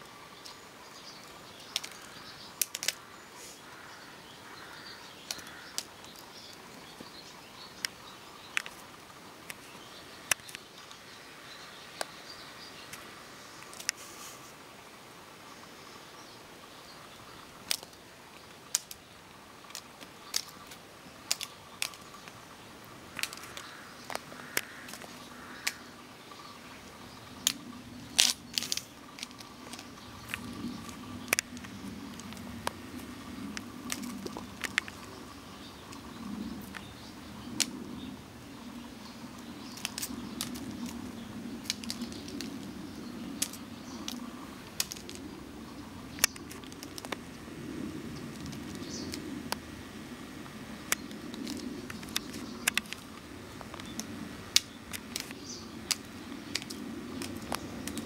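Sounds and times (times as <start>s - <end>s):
faint low rumble: 18.2s - 58.0s.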